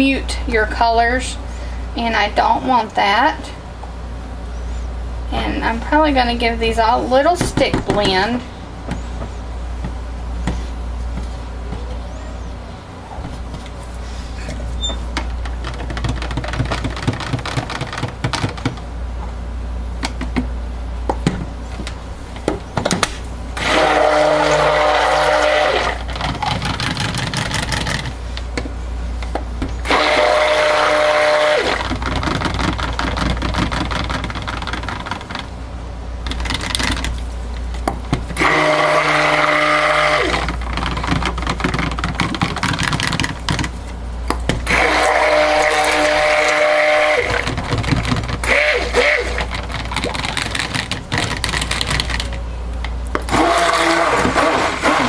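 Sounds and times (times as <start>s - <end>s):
stick blender motor whine: 23.6s - 28.1s, 29.8s - 35.1s, 38.3s - 43.1s, 44.5s - 50.2s, 53.1s - 55.0s
knocks and clicks: 40.4s - 44.6s.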